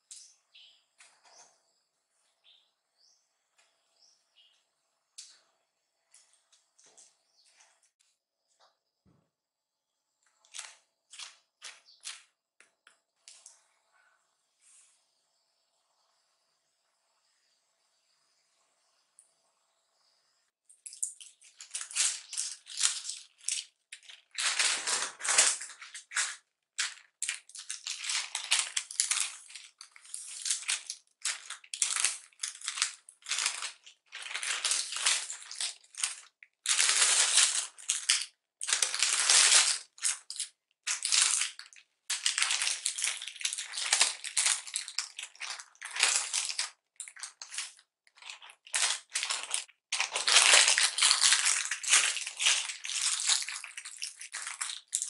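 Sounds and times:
thin paper crinkling and rustling: 21.0s - 55.0s.

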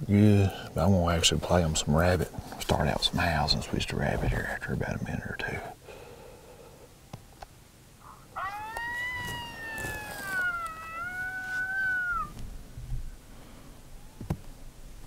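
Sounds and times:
recorded coyote howl: 8.0s - 12.4s.

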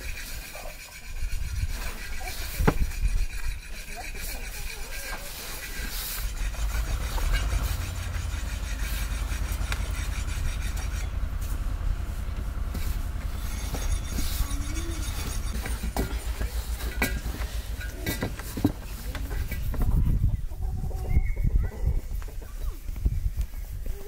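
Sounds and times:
steady low rumble: 6.2s - 20.9s.

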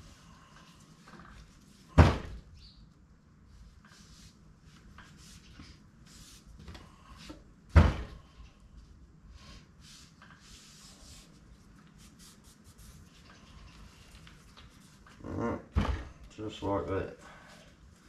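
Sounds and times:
scraping and wiping: 3.5s - 7.4s, 9.4s - 15.2s.

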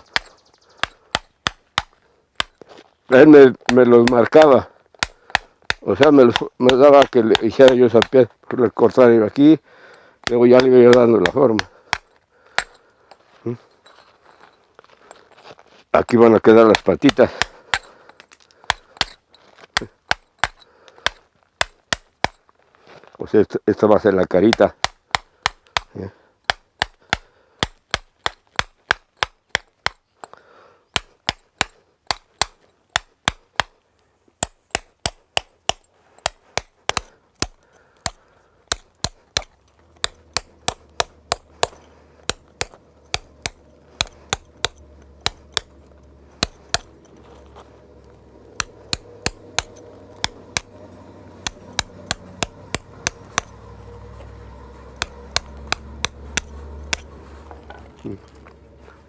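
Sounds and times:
stone hammer tapping chisel: 0.0s - 2.6s, 3.6s - 8.2s, 10.2s - 12.8s, 16.6s - 22.4s, 34.4s - 47.0s, 48.5s - 50.8s, 51.4s - 53.6s, 54.9s - 57.1s.

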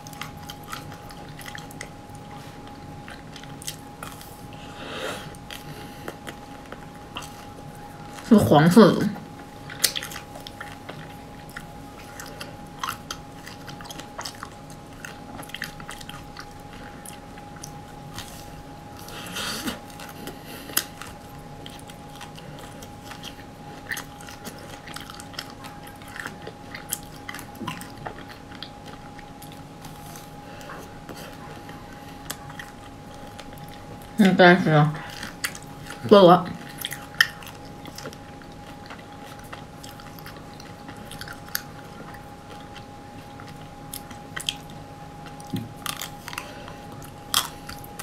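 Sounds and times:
wet chewing mouth sounds: 0.0s - 48.0s
crunching ice cream coating: 35.0s - 48.0s.

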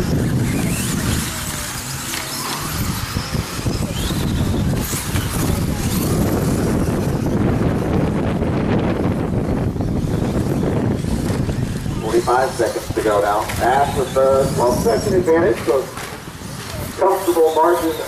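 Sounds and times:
rc truck motors whining: 0.0s - 18.0s
steady low rumble: 2.7s - 16.5s.

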